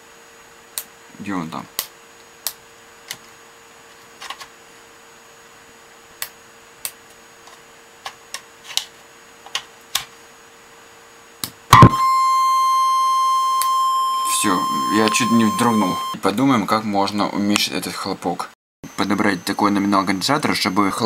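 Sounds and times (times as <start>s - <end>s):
loud speaker turn-on thump: 11.7s - 12.3s
steady tone from speaker: 11.7s - 16.2s, 18.8s - 21.0s.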